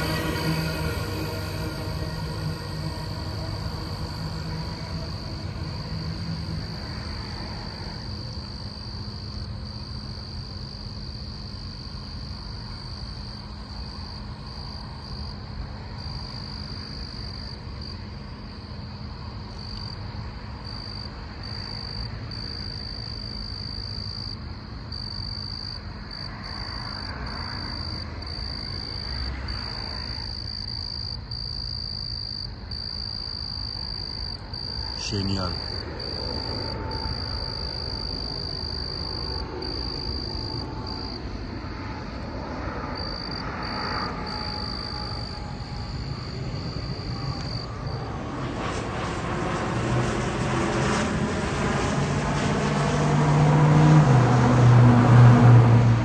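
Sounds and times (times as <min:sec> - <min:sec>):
high pulsing trill: 0:00.0 - 0:07.4
frogs and insects chorus: 0:00.0 - 0:48.8
freight train rumble: 0:00.0 - 0:49.0.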